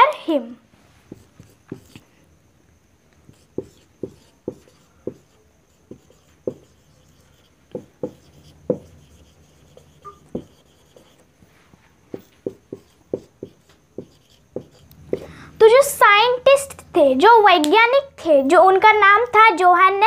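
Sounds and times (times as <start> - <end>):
marker writing on whiteboard: 1.1 - 2.2, 3.2 - 15.8.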